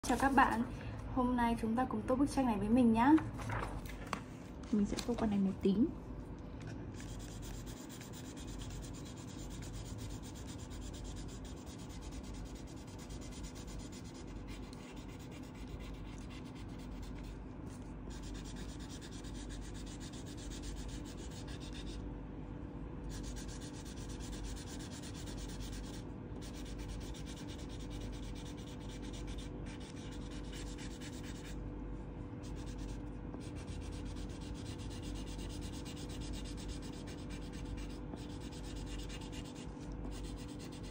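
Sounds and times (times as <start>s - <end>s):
crayon rubbing on paper: 7.0s - 22.0s, 23.1s - 31.6s, 32.4s - 40.9s.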